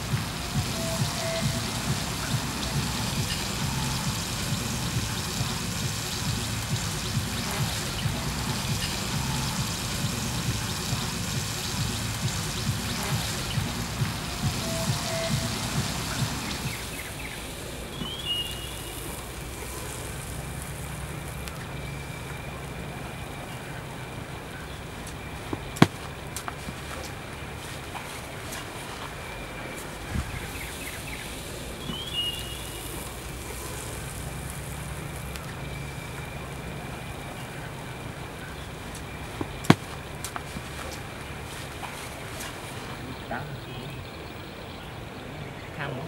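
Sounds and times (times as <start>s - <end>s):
bird chirping: 0.0s - 46.0s
low outdoor hum: 0.0s - 46.0s
steaks sizzling and popping: 24.9s - 28.8s.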